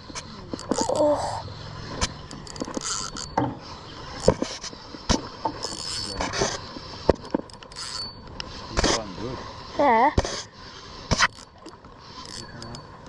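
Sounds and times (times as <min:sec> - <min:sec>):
spinning reel being cranked: 0:00.1 - 0:01.4, 0:02.3 - 0:03.4, 0:05.6 - 0:06.2, 0:07.5 - 0:08.2, 0:12.2 - 0:12.9
knocks and clicks of rod: 0:02.0 - 0:03.6.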